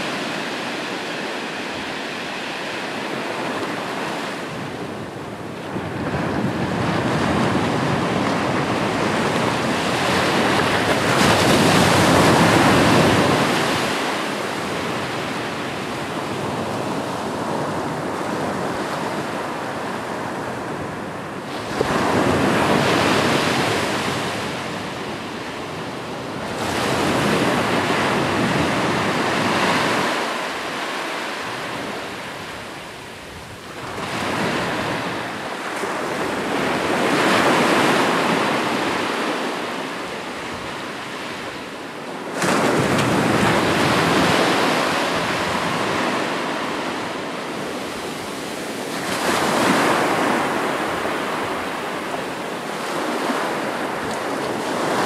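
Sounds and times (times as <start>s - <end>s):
waves breaking on shore: 0.0s - 55.0s.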